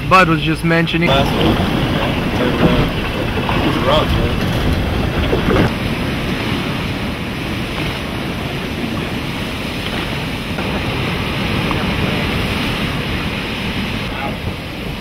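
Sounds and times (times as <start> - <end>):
ocean surf: 0.0 - 15.0
wind buffeting microphone: 0.0 - 15.0.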